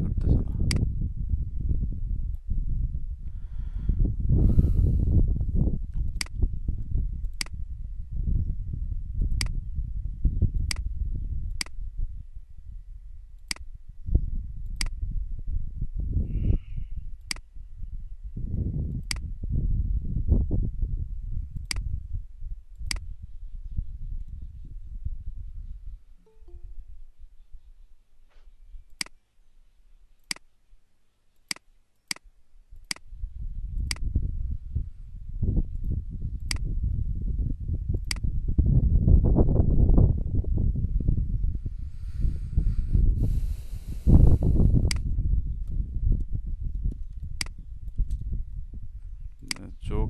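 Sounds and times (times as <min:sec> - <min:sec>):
computer mouse clicks: 0:06.0 - 0:06.4, 0:14.7 - 0:14.9, 0:33.8 - 0:34.0, 0:36.4 - 0:36.6, 0:38.0 - 0:38.2.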